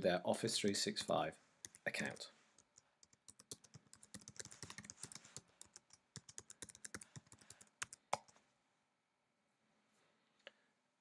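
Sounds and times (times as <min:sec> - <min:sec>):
typing on computer keyboard: 0:01.0 - 0:08.3.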